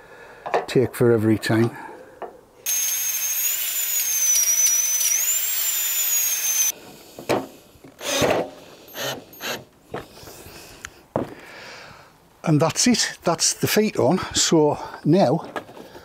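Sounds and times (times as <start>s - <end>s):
cordless drill whining: 2.6s - 6.8s, 8.0s - 9.7s.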